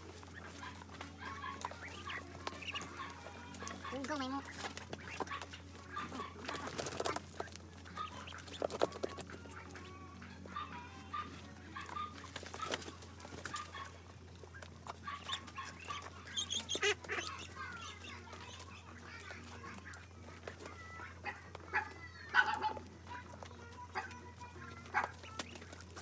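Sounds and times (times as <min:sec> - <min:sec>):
ducks chirping: 0:00.0 - 0:26.0
clicks and knocks of feeding: 0:00.2 - 0:09.9.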